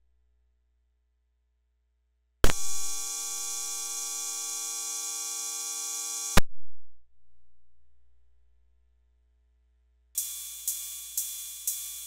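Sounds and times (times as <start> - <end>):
bright hiss with metallic tones: 10.2 - 12.0.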